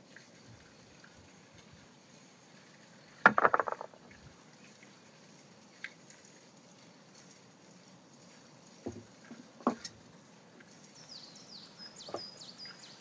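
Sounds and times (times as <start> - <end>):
kitchenware clattering on wooden table: 3.3 - 4.0.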